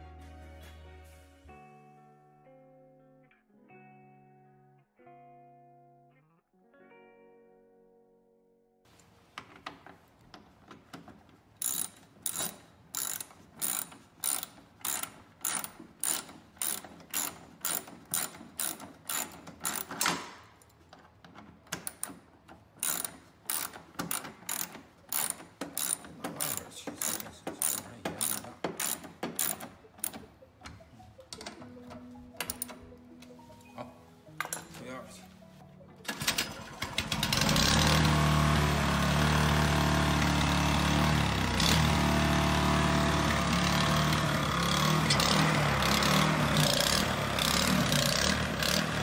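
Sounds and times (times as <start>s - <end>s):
ratchet wrench clicking: 11.6s - 20.2s, 21.8s - 22.2s, 22.8s - 30.3s.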